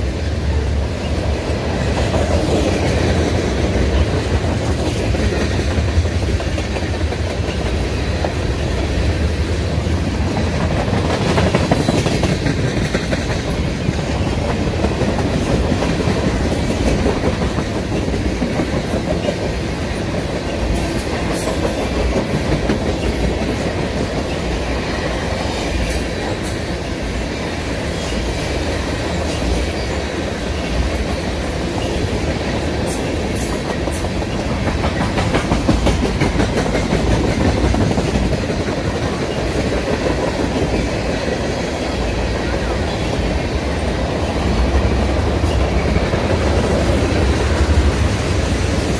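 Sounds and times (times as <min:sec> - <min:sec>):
steel wheels rumbling on rail: 0:00.0 - 0:48.9
wheels clicking over rail joints: 0:09.9 - 0:27.1, 0:29.0 - 0:43.4.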